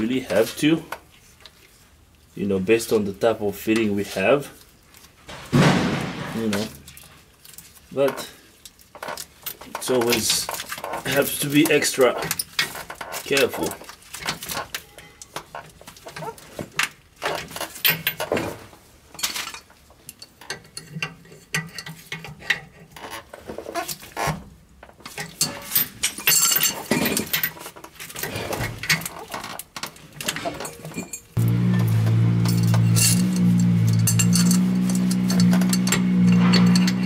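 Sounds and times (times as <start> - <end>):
metallic clicks and clinks: 30.2 - 37.0.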